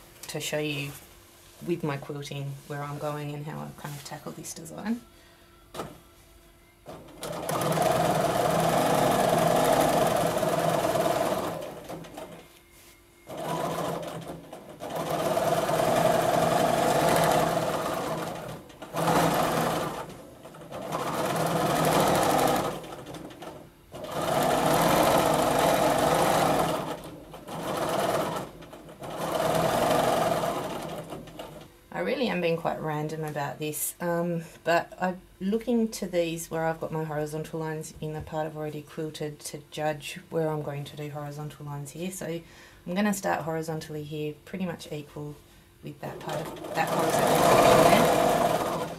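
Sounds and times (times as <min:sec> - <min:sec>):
sewing machine stitching: 0:06.9 - 0:12.5, 0:13.3 - 0:31.7, 0:46.0 - 0:48.9.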